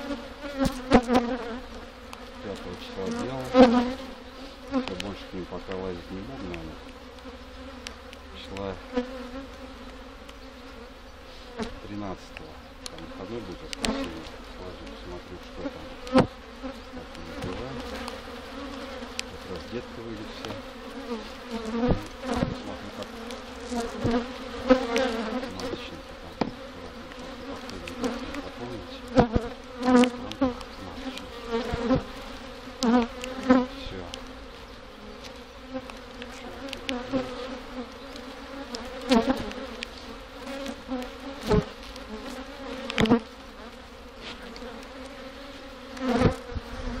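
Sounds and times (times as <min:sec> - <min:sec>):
bee buzzing close by: 0:00.0 - 0:47.0
bees humming: 0:00.0 - 0:47.0
wooden hive parts knocking: 0:21.7 - 0:32.2.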